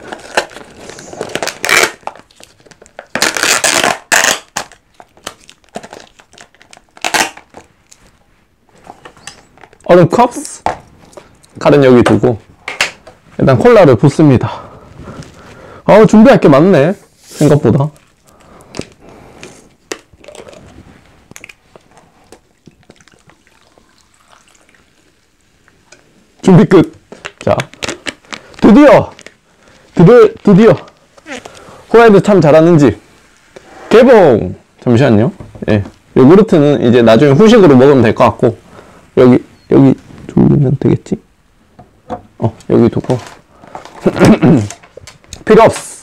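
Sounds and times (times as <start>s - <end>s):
plastic wrapping crinkling and tearing: 0.0s - 10.0s, 26.5s - 32.2s, 42.7s - 46.0s
cola pouring and fizzing: 22.4s - 25.8s.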